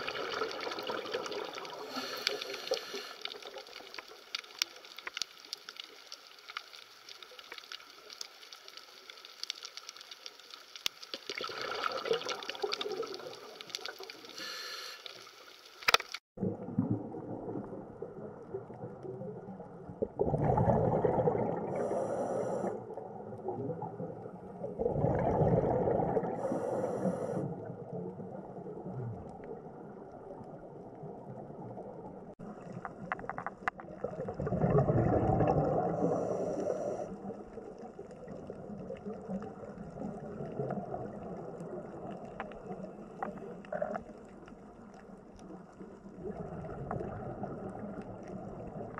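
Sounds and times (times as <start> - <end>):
exhaled bubbles gurgling: 0.0 - 4.6, 11.2 - 14.7, 16.4 - 48.9
faint crackling underwater: 0.0 - 48.9.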